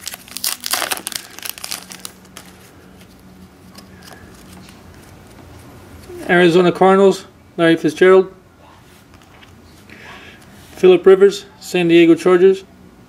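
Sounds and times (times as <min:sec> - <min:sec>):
foil wrapper crinkling: 0:00.0 - 0:05.2.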